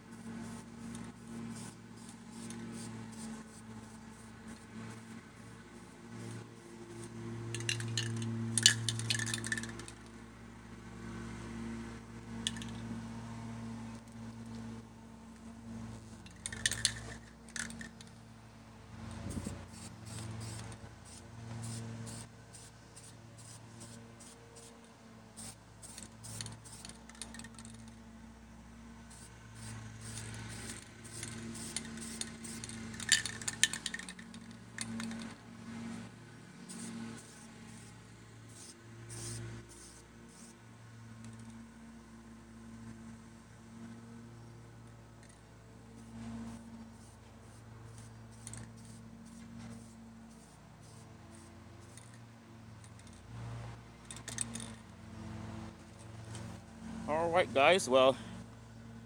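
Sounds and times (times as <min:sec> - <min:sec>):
spray can ball rattling: 0:07.0 - 0:10.1, 0:12.4 - 0:12.8, 0:16.2 - 0:18.2, 0:25.4 - 0:28.0, 0:29.6 - 0:35.3, 0:38.5 - 0:40.5, 0:46.0 - 0:52.2, 0:54.0 - 0:54.9.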